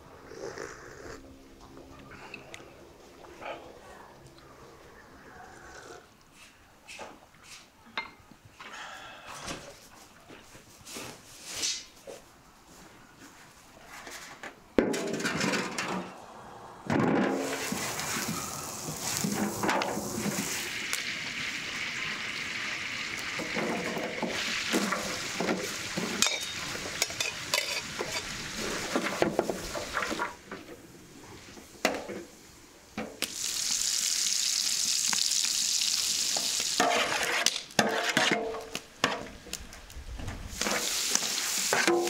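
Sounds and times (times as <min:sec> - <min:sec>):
food sizzling in oil: 0:17.4 - 0:30.2, 0:33.2 - 0:37.3, 0:40.6 - 0:42.0
utensil scraping a pan: 0:26.0 - 0:30.2, 0:36.8 - 0:38.7.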